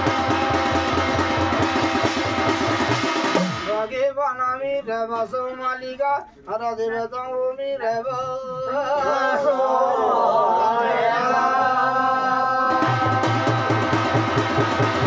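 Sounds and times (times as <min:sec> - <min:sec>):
fast even drum beat: 0:00.0 - 0:03.9, 0:12.7 - 0:15.0
overlapping voices singing: 0:07.8 - 0:14.2.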